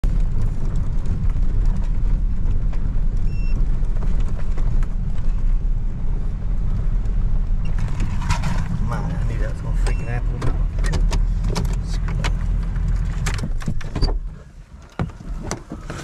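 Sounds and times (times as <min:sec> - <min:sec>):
engine and road rumble: 0:00.0 - 0:16.0
cab rattles and knocks: 0:07.6 - 0:16.0.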